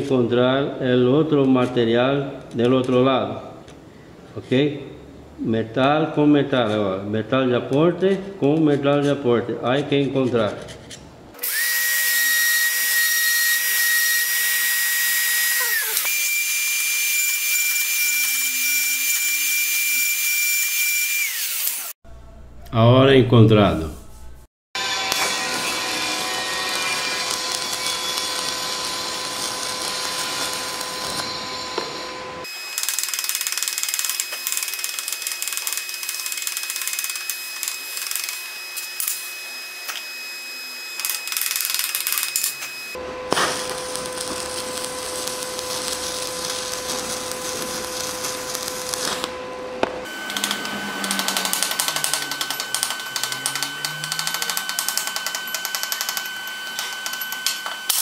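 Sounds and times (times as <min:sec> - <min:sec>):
welding arc crackling and sizzling: 0:11.4 - 0:22.0, 0:24.8 - 0:40.1, 0:41.0 - 0:58.0.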